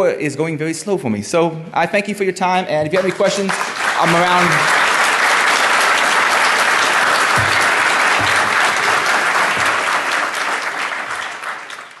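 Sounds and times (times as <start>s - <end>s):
audience clapping: 2.8s - 12.0s.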